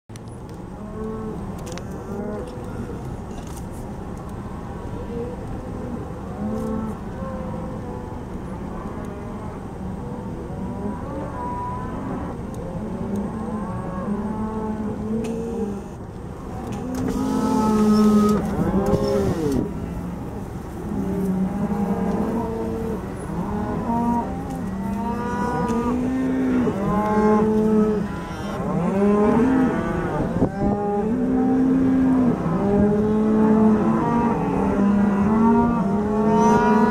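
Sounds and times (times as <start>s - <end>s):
cattle mooing: 0.8s - 2.9s, 10.5s - 16.0s, 16.6s - 36.9s.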